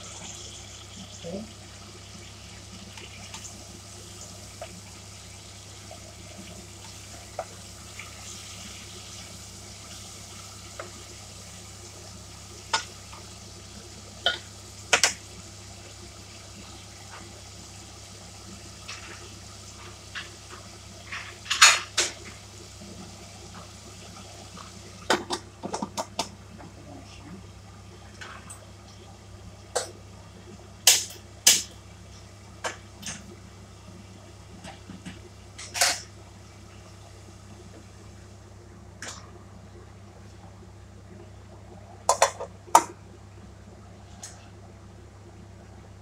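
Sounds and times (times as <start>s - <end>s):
utensils and cookware clattering: 21.1s - 22.2s, 35.6s - 36.1s.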